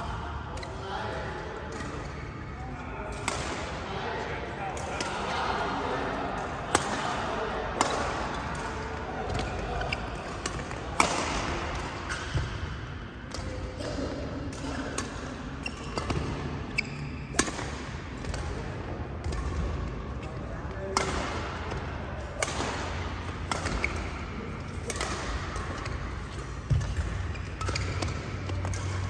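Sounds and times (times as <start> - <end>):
court shoes squeaking: 12.0 - 12.6, 15.0 - 17.6, 23.5 - 29.0
rackets striking shuttlecock: 17.3 - 18.6, 20.9 - 21.8, 22.4 - 29.0.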